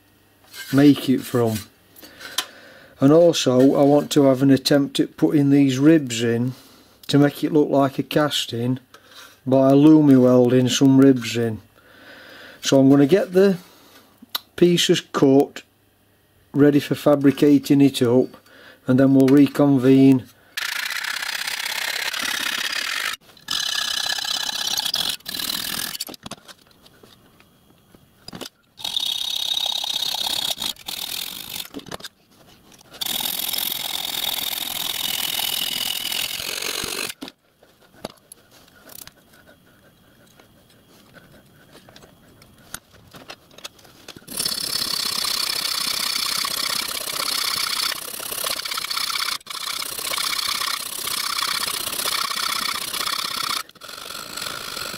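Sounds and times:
hacksaw rasping through metal: 44.3s - 54.9s.

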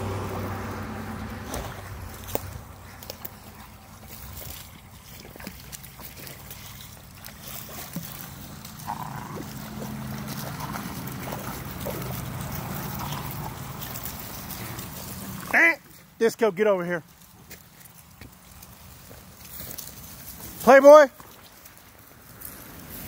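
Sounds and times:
dogs splashing through water: 0.0s - 23.0s.

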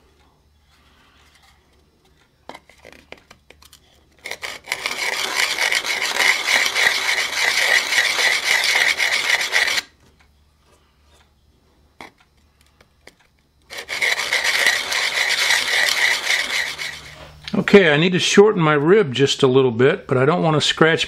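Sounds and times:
sanding block rubbing metal: 4.2s - 9.9s, 13.7s - 17.3s.

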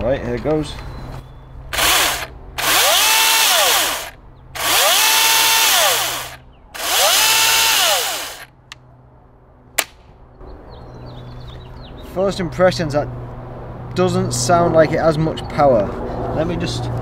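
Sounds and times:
electric chainsaw revving: 1.7s - 8.5s.

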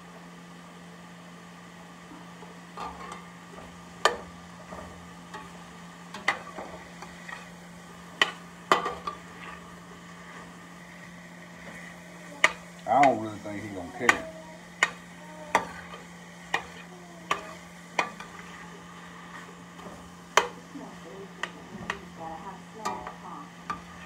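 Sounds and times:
vegetables sizzling: 0.0s - 24.0s
metal spatula scraping a pot: 6.2s - 7.6s, 8.2s - 10.5s, 14.8s - 19.6s
spatula clanking against pot: 8.2s - 9.6s, 14.1s - 18.4s, 19.8s - 20.6s.

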